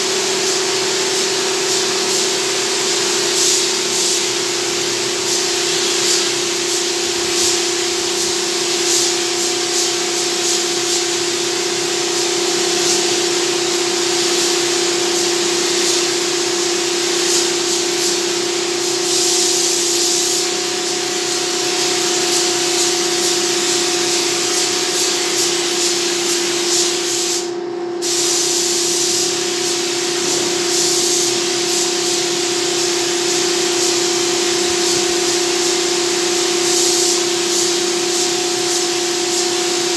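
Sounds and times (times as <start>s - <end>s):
spray gun hissing: 0.0s - 39.9s.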